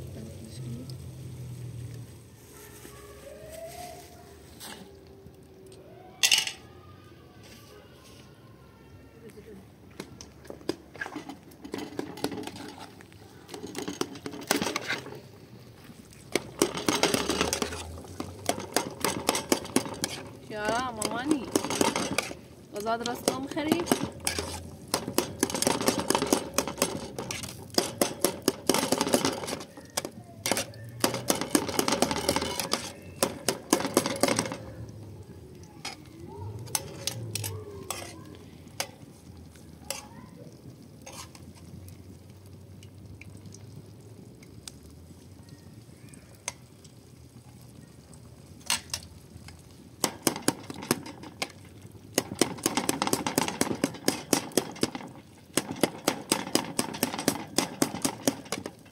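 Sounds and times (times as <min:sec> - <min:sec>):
metal spoon scraping metal pot: 0:10.9 - 0:15.3, 0:16.3 - 0:34.8, 0:36.7 - 0:39.0, 0:41.0 - 0:41.7.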